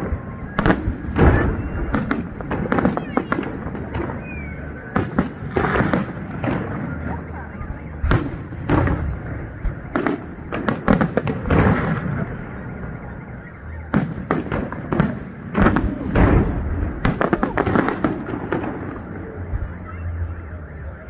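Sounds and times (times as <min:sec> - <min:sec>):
firework shells bursting and crackling: 0:13.9 - 0:19.5.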